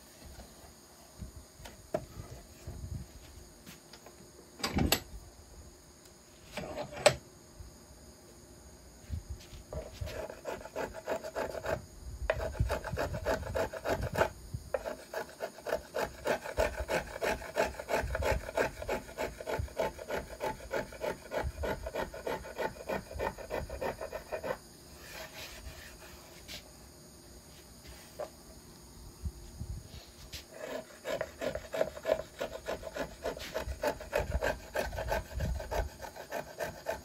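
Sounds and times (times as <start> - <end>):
hand tool rasping wood: 9.7 - 26.1, 30.4 - 37.0.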